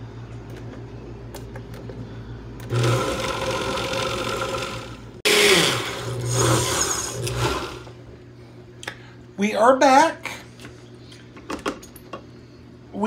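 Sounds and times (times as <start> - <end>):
blender pureeing: 2.6 - 8.0.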